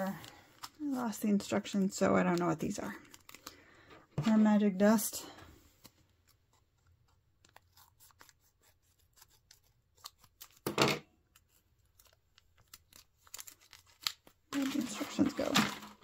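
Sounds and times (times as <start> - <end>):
plastic crinkling: 11.4 - 16.0
plastic packet rustle: 11.9 - 16.0.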